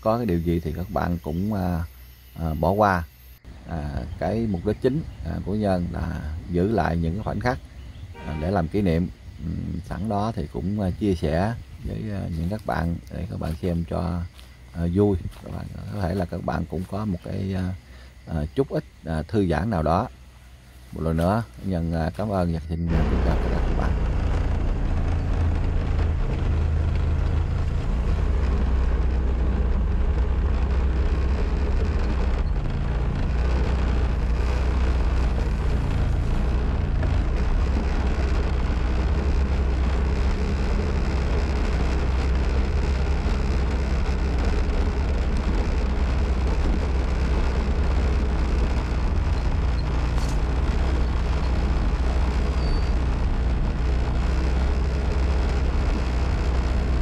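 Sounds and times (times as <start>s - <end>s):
motorbike engine running: 22.9s - 57.0s.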